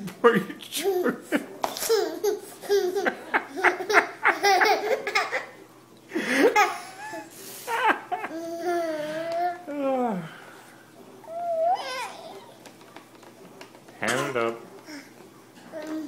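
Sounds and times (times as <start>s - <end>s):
baby laughing: 0.6s - 5.6s, 6.4s - 9.6s.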